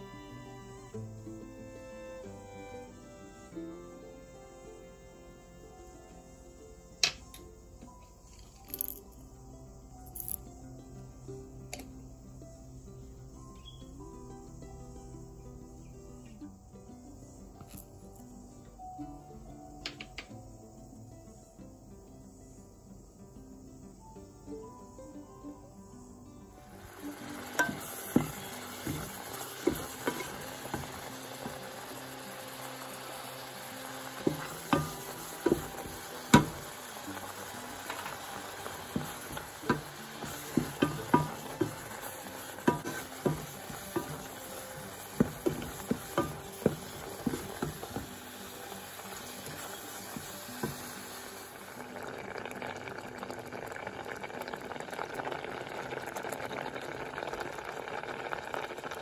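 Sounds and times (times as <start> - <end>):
steady hiss: 0.0 - 59.0
mixture bubbling: 26.6 - 59.0
wooden spoon knocking on pot: 27.4 - 31.7, 34.2 - 36.8, 37.8 - 48.2.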